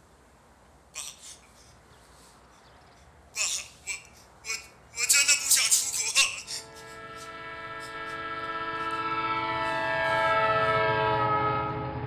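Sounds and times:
low rumble of passing train: 6.0s - 12.0s
train horn chord: 6.6s - 12.0s.

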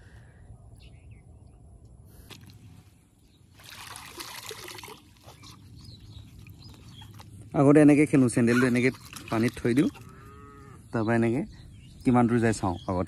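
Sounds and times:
soft splashing: 2.2s - 10.5s
water sloshing around feet: 2.2s - 10.8s.

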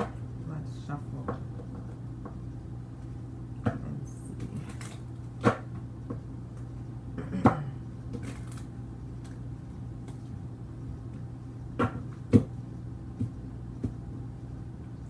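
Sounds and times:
steady low hum: 0.0s - 15.0s
cards being shuffled: 8.1s - 9.4s.

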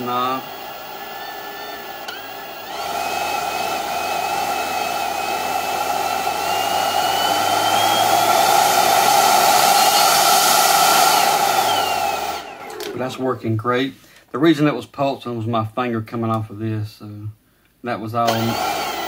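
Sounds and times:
leaf blower fan motor whine: 0.0s - 13.3s, 18.3s - 19.0s.

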